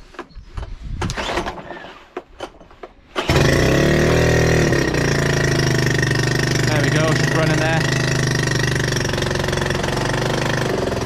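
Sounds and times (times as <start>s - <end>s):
outboard engine running: 3.2s - 11.0s.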